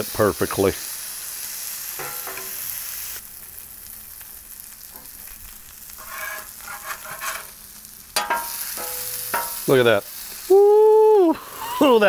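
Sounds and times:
fish sizzling on griddle: 0.0 - 12.0
metal spatula scraping griddle: 2.0 - 2.7, 5.9 - 9.8.

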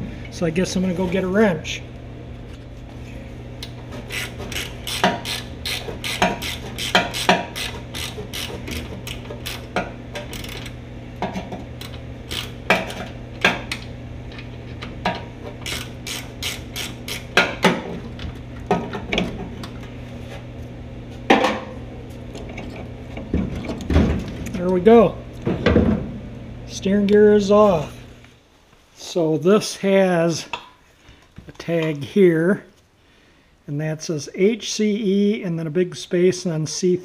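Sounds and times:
ratchet wrench clicking: 4.1 - 10.8, 11.8 - 12.6, 15.6 - 17.4.

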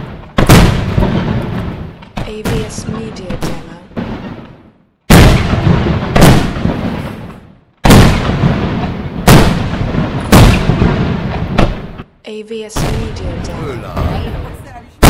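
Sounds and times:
firework shells booming: 0.0 - 12.1.

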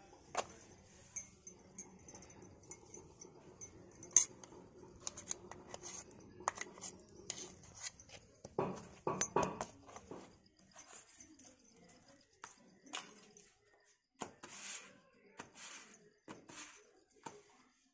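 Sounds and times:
steel kitchen utensils clinking: 0.0 - 13.4.

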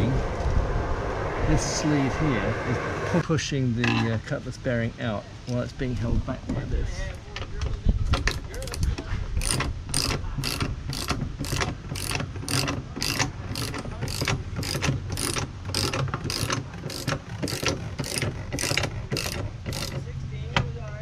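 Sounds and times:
ratchet wrench clicking: 8.2 - 20.1.

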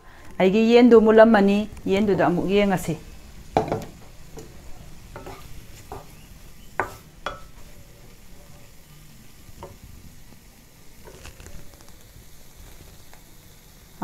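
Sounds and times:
chicken sizzling in a pan: 1.6 - 14.0
spatula scraping a pan: 5.2 - 8.8, 11.0 - 11.7.

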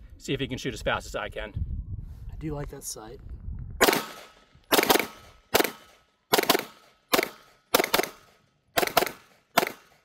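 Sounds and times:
pistol shots with echo: 3.8 - 10.0.

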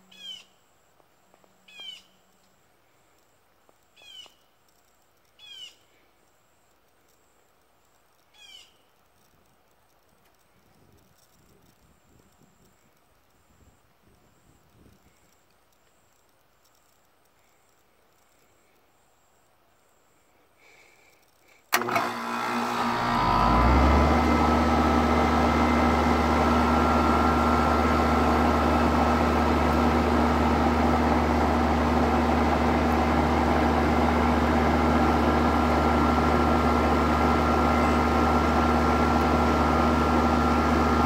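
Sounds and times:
air conditioner compressor humming: 21.7 - 41.0.

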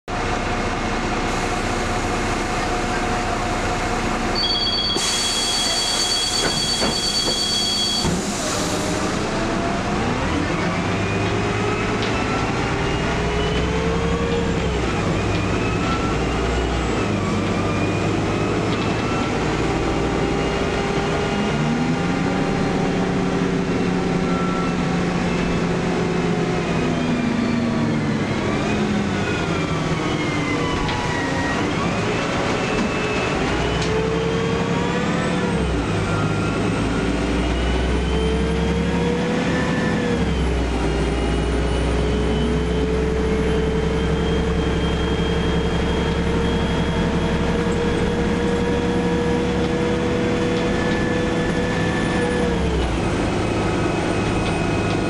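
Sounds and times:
bus engine whine: 0.1 - 55.0
two-tone electronic beep: 4.4 - 8.2
hiss of air: 5.0 - 6.0.

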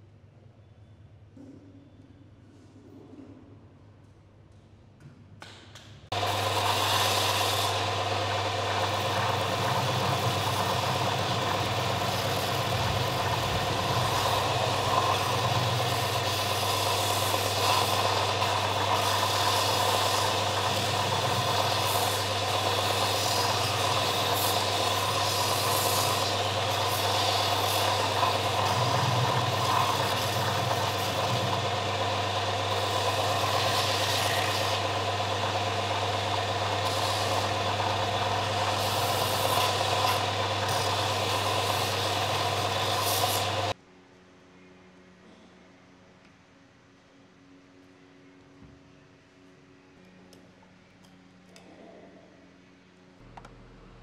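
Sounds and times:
belt sander motor humming: 6.1 - 43.8
wood being sanded hiss: 6.1 - 43.8.

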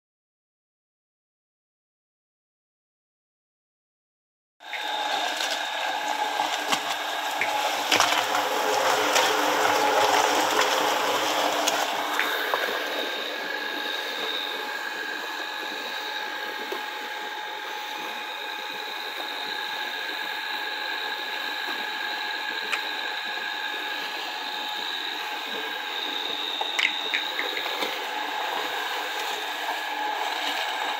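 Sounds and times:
concrete mixer running: 4.6 - 30.9.

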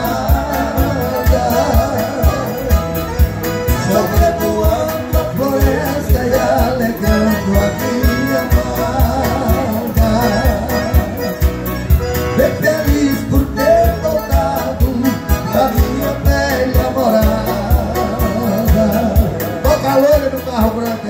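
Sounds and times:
keyboard accompaniment with beat: 0.0 - 21.0
two men singing: 0.0 - 21.0.

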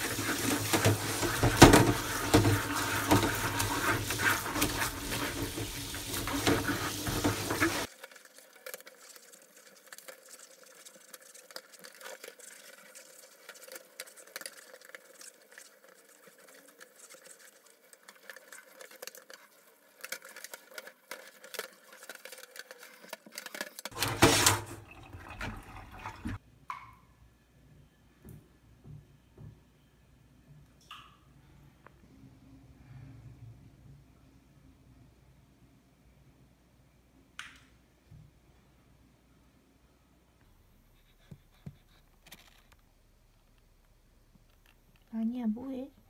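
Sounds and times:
water running into steel sink: 0.0 - 11.5, 23.9 - 26.4
brush scrubbing metal mesh: 0.0 - 24.7.

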